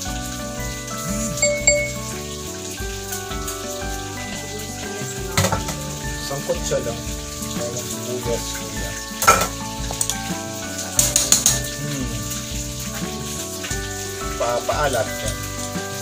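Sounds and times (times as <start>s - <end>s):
background music: 0.0s - 16.0s
running water hiss: 0.0s - 16.0s
dishes clinking: 1.4s - 2.2s, 5.4s - 5.9s, 9.2s - 10.1s, 10.9s - 11.8s.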